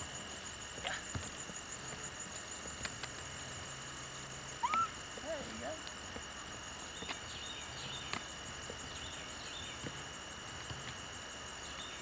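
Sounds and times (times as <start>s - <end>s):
recording hiss: 0.0s - 12.0s
faint high chirps: 4.6s - 5.4s.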